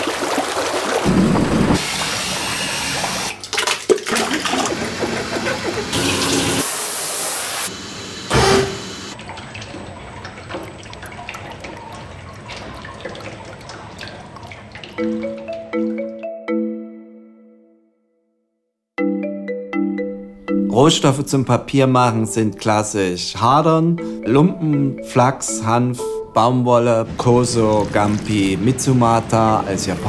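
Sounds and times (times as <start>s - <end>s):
water dripping: 9.2s - 16.2s.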